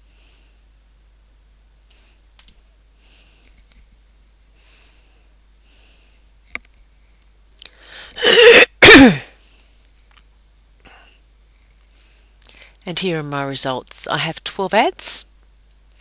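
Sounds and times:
person sneezing: 8.2s - 9.4s.

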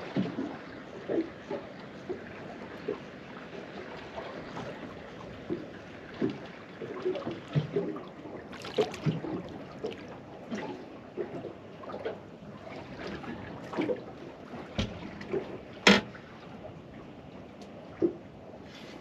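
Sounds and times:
water lapping against a boat hull: 0.0s - 19.0s
sharp knock on a boat: 14.8s - 15.1s, 15.8s - 16.2s.

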